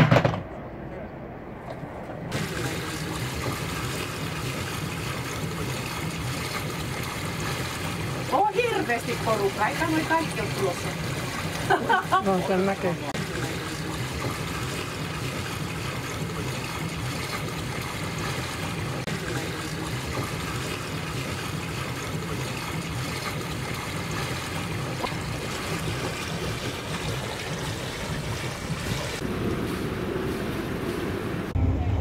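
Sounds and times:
low rumble: 25.0s - 32.0s.

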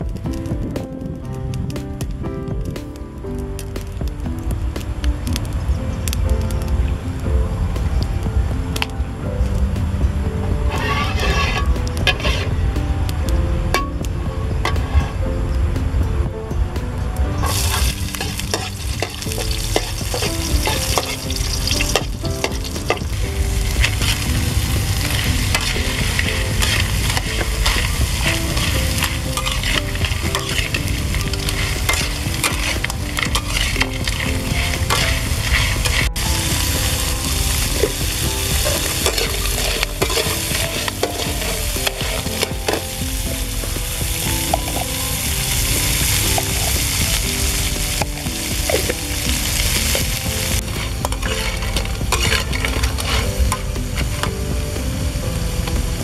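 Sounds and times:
food sizzling in hot oil: 10.7s - 12.5s, 17.4s - 56.0s
metal spatula scraping a pan: 10.7s - 12.6s, 17.4s - 42.9s, 48.7s - 54.2s.

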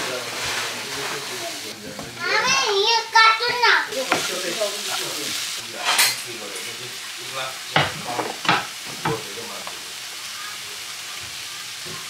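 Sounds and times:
wooden spatula scraping: 0.0s - 2.8s, 3.4s - 6.0s
food sizzling in a wok: 0.0s - 12.0s
utensils knocking on pan: 3.4s - 5.0s, 7.7s - 9.8s.

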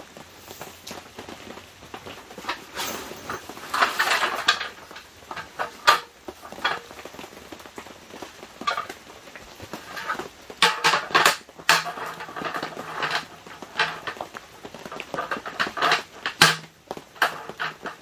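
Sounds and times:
table clattering clicks and knocks: 2.4s - 6.9s, 8.6s - 9.0s, 9.7s - 18.0s.

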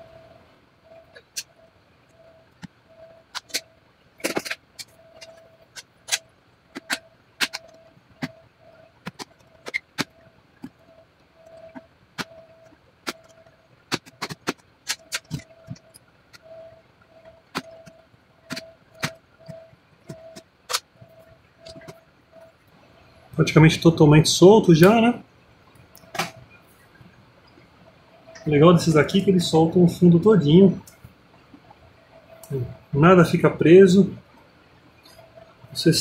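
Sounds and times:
faint beeps: 0.0s - 4.1s, 4.8s - 14.2s, 14.9s - 36.0s.

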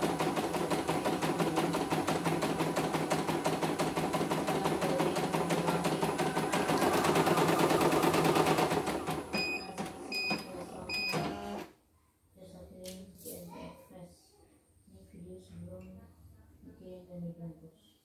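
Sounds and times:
embroidery machine stitching: 0.0s - 11.7s.

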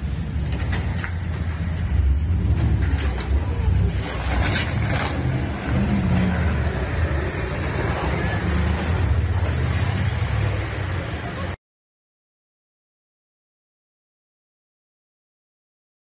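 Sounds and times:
vehicle engine and traffic rumble: 0.0s - 11.6s.

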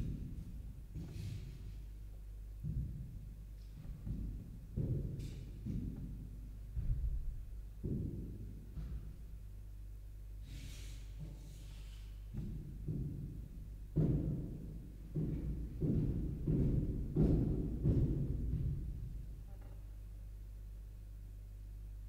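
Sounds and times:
brief hiss: 10.4s - 12.1s
footfalls on carpeted floor: 12.3s - 19.4s.

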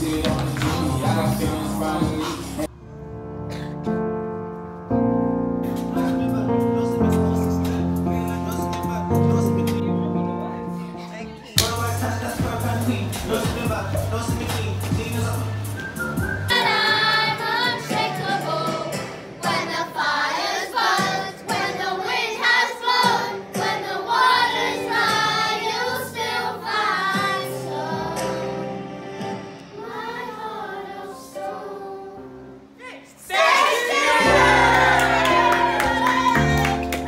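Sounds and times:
loud music: 0.0s - 3.6s, 5.5s - 19.9s
children singing together: 16.5s - 32.6s, 33.2s - 36.8s.

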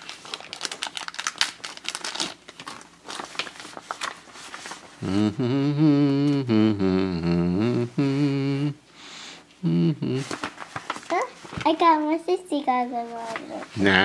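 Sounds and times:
plastic packaging crinkling: 0.0s - 5.0s, 10.2s - 11.8s
person humming a tune: 5.0s - 8.8s, 9.6s - 10.4s.

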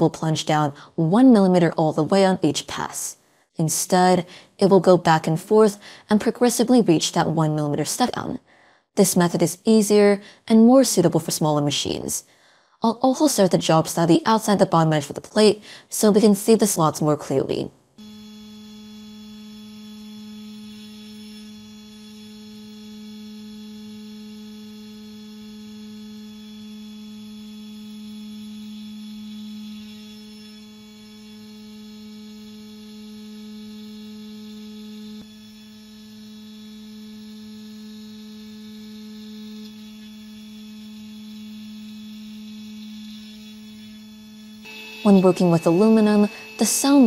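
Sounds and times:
cnc spindle milling aluminum: 18.0s - 47.0s.

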